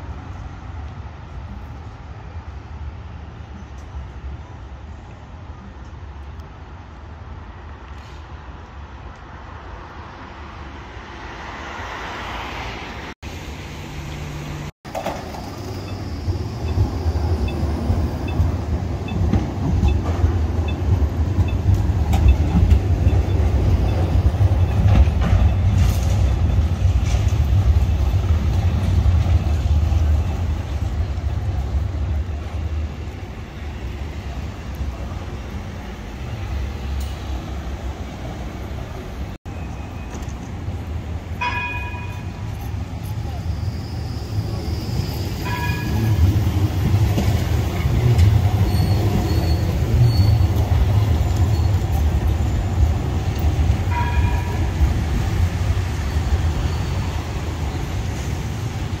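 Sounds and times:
tram rumbling on track: 0.0s - 59.0s.

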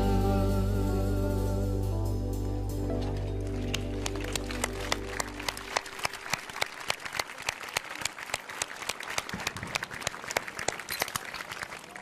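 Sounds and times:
held music chord: 0.0s - 5.8s
audience applauding: 3.1s - 12.0s.

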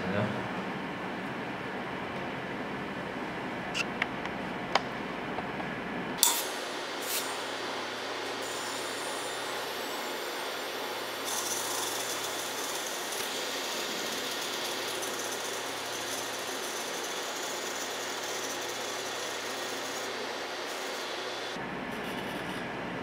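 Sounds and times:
high-pressure air fill hissing: 6.2s - 21.6s.

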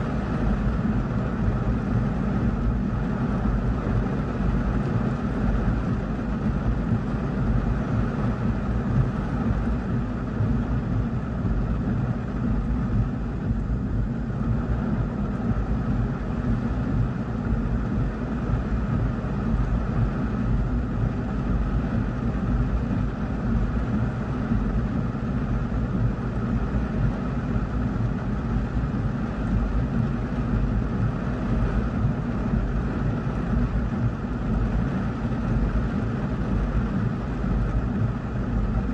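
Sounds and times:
heavy rain on a car roof: 0.1s - 10.7s, 26.2s - 38.9s.

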